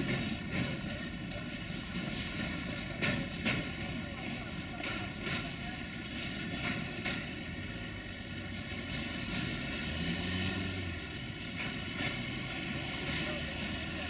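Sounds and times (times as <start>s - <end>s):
wheel clicks over rail joints: 0.0s - 8.2s, 11.3s - 14.0s
freight train rumbling on rails: 0.0s - 14.0s.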